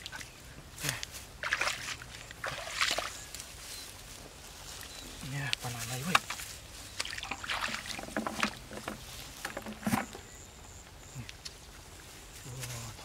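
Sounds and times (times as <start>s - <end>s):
muddy water splashing: 0.0s - 3.5s, 5.6s - 10.2s.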